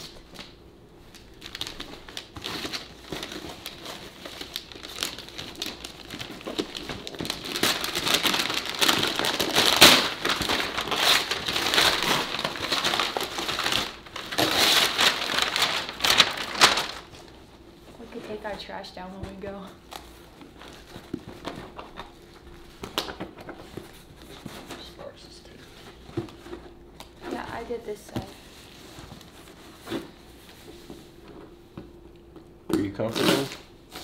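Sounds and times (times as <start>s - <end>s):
wrapping paper crinkling: 0.0s - 18.6s.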